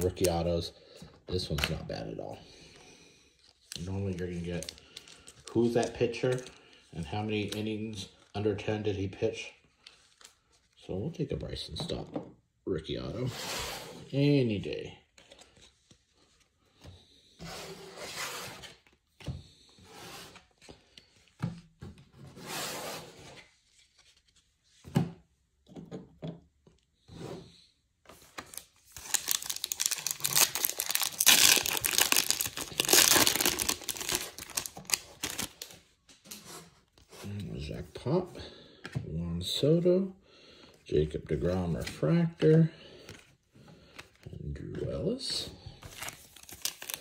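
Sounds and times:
cards rustling and tapping: 28.1 - 36.2, 41.7 - 47.0
wrapper tearing and crinkling: 28.9 - 35.7, 46.0 - 47.0.

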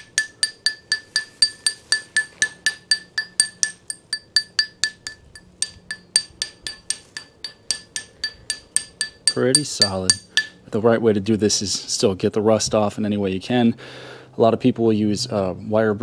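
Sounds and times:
hammer tapping on concrete: 0.0 - 10.7.

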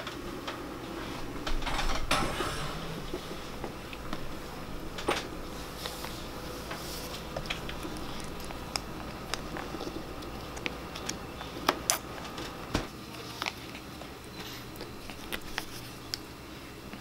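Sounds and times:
car seat rustling: 1.1 - 10.5.

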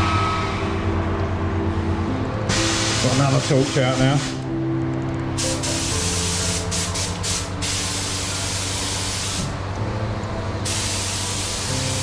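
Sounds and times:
spray gun hissing: 2.5 - 4.4, 5.5 - 9.5, 10.6 - 12.0.

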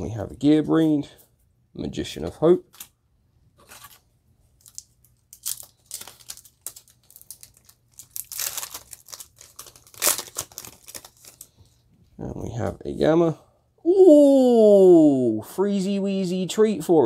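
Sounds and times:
foil pack crinkling and tearing: 4.6 - 11.6.

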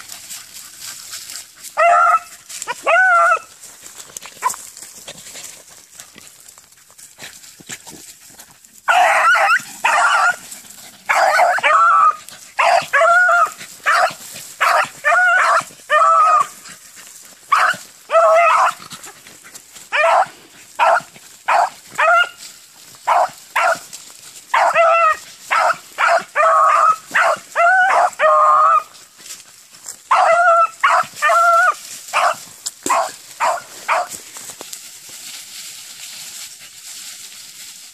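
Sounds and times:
hounds baying: 0.0 - 3.6, 8.8 - 29.0, 30.0 - 34.2.

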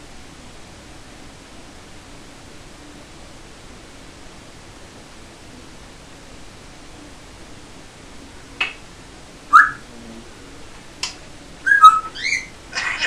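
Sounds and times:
parrot whistling: 9.5 - 9.8, 11.6 - 13.0.

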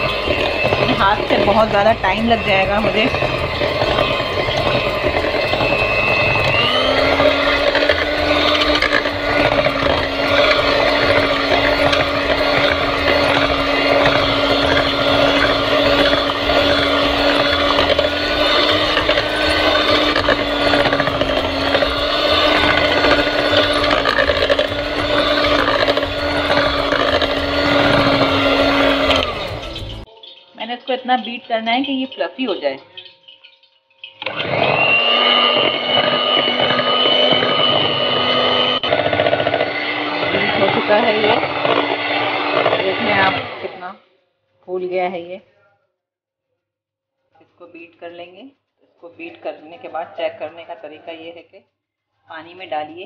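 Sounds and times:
electric hand mixer whine: 0.0 - 30.1, 34.1 - 44.0.

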